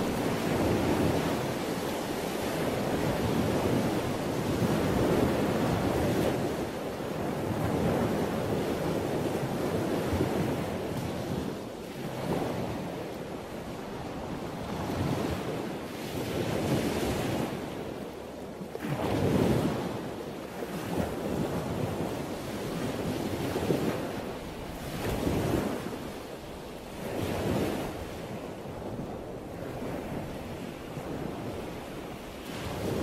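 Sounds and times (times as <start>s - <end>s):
rushing surf-like noise: 0.0s - 5.9s.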